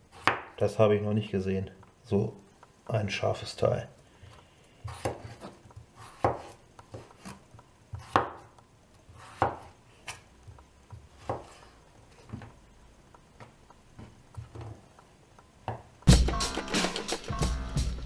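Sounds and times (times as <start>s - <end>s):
knife slicing through potato: 4.8s - 8.5s, 9.1s - 10.2s, 11.2s - 11.8s.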